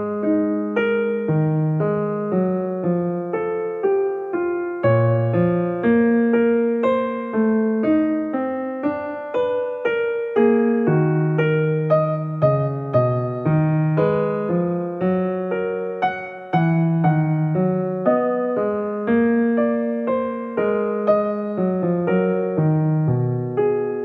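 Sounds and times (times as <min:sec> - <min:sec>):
gentle piano melody: 0:00.0 - 0:24.0.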